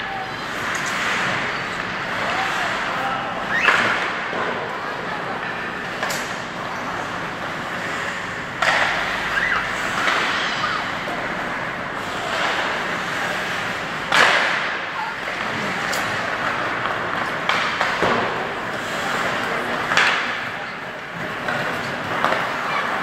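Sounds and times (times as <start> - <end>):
skates on ice: 0.1 - 20.6
hockey stick cracks: 8.6 - 10.8, 14.1 - 20.4.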